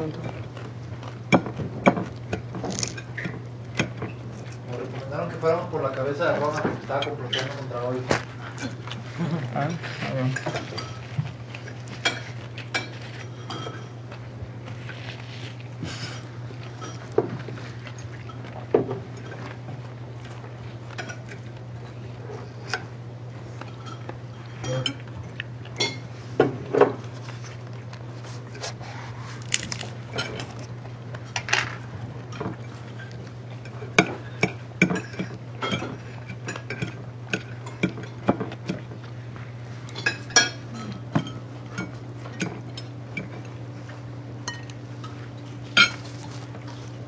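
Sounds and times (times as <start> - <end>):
steady low hum: 0.0 - 47.0
cutlery clinking on plates: 32.3 - 38.8, 39.9 - 43.5, 44.5 - 46.3
dishes and cup knocking: 40.4 - 41.4.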